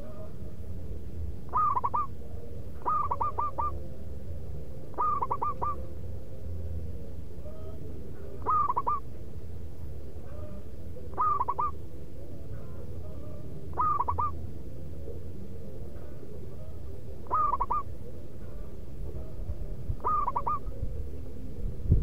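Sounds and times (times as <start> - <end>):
dove cooing: 0.0 - 0.5, 1.5 - 4.0, 4.8 - 6.0, 7.4 - 9.2, 10.2 - 21.5.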